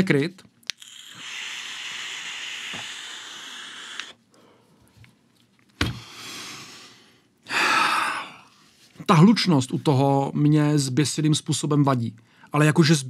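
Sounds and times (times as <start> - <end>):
vape click: 0.6 - 4.2
air hissing through vape: 0.7 - 4.2
breathy exhale: 0.9 - 4.8, 5.9 - 8.5.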